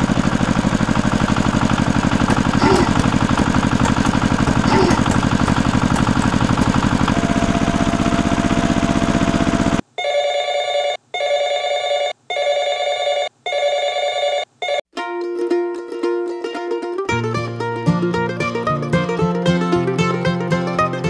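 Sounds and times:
engine chugging: 0.0s - 9.8s
telephone ringtone: 10.0s - 14.8s
plucked-string music: 15.0s - 21.0s.

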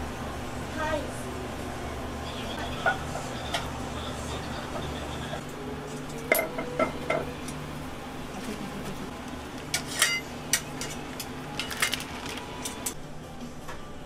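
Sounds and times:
steady low hum: 0.0s - 14.0s
pots and utensils clattering: 5.9s - 7.3s, 9.7s - 13.0s.

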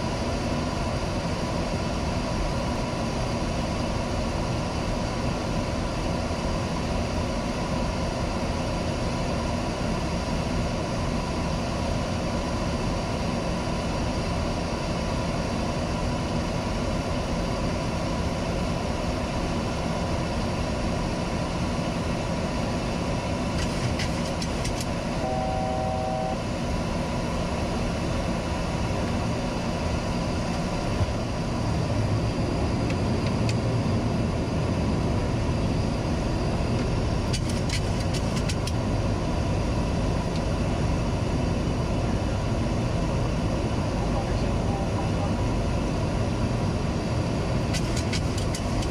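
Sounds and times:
airplane cockpit noise: 0.0s - 48.9s
two-note beep: 25.2s - 26.4s.

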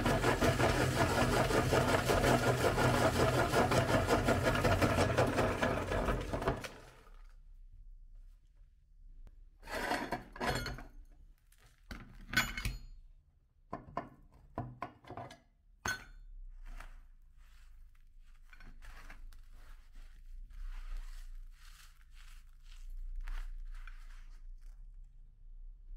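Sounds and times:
dry crumbs hissing: 16.6s - 24.9s.

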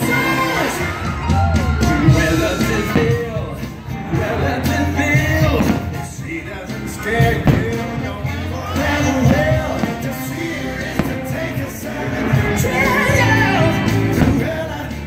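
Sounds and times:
song with band: 0.0s - 15.0s.

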